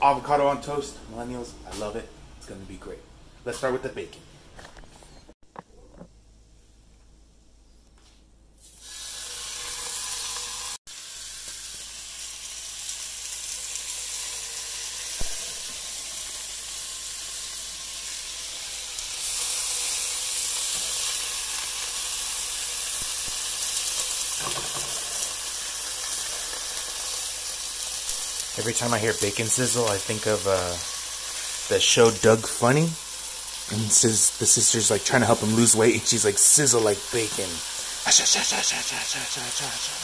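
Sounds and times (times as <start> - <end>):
bacon sizzling in a frying pan: 8.6 - 40.0.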